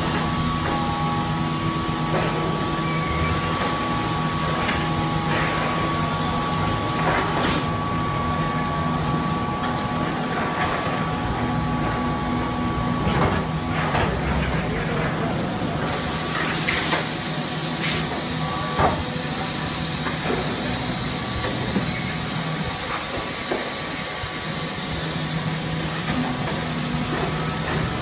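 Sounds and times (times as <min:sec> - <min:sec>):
machine hum with held tones: 0:00.0 - 0:13.8.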